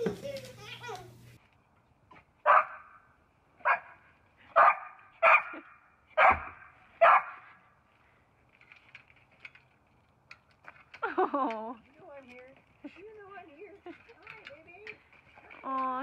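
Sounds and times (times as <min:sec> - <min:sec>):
dog barking: 0:02.4 - 0:03.0, 0:03.6 - 0:04.0, 0:04.6 - 0:07.6.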